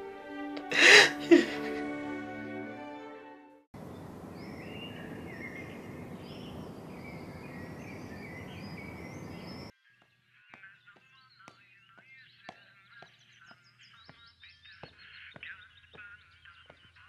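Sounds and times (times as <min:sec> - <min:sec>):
birds chirping: 0:03.8 - 0:09.7, 0:10.3 - 0:17.0
city background hum: 0:03.8 - 0:09.7.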